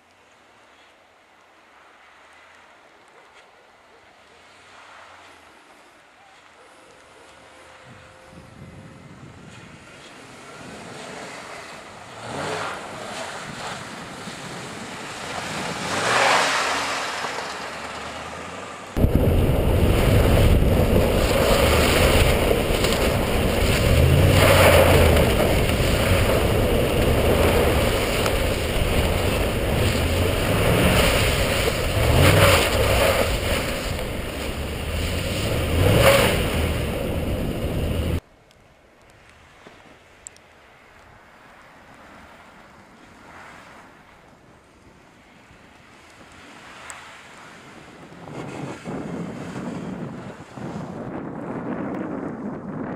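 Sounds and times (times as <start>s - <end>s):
wind buffeting on microphone: 7.8s - 10.0s, 19.0s - 38.2s, 47.5s - 52.9s
truck engine revving: 15.3s - 38.2s.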